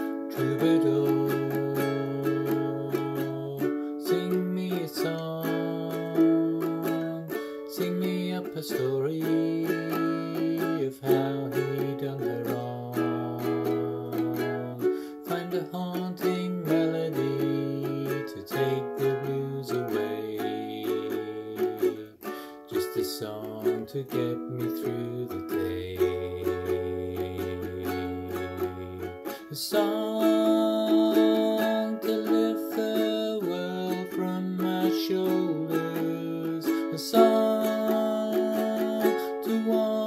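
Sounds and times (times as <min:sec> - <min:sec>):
man singing: 0:00.0 - 0:40.0
strummed ukulele: 0:00.0 - 0:40.0.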